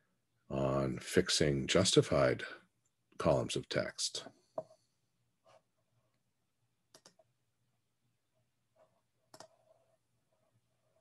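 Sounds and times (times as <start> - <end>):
computer mouse clicks: 6.9 - 7.3, 9.3 - 9.7.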